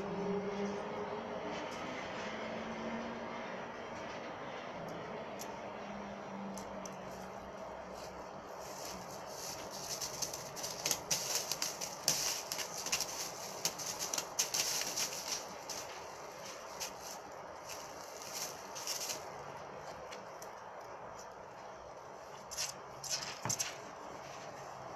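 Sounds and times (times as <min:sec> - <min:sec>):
clothes and plastic bag crinkling: 0:06.7 - 0:24.9.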